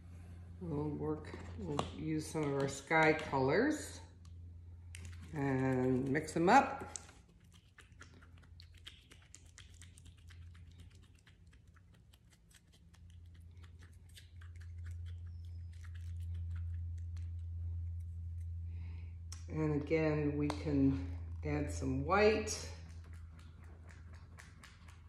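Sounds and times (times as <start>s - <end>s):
steady low hum: 0.0s - 25.0s
wet paper pulp squishing: 4.8s - 19.0s.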